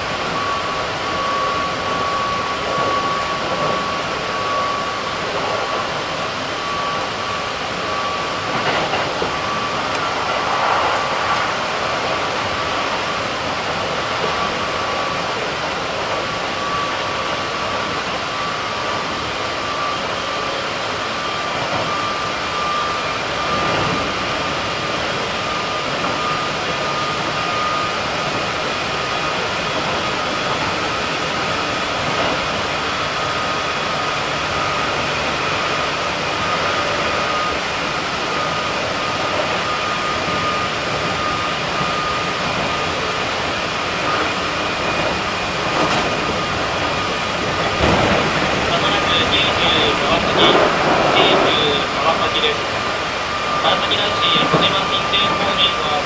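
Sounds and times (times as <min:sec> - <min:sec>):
high train whine: 0:00.0 - 0:56.0
train wheels rumbling on track: 0:00.0 - 0:56.0.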